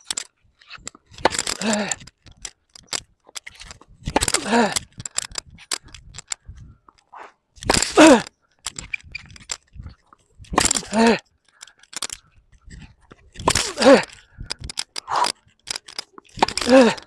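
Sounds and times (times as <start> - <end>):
player grunting: 1.5 - 2.0, 4.2 - 4.8, 7.8 - 8.3, 10.7 - 11.2, 13.6 - 14.2, 16.6 - 17.0.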